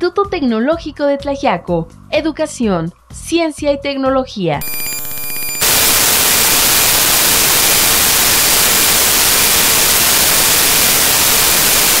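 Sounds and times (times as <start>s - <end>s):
static hiss: 4.6s - 12.0s.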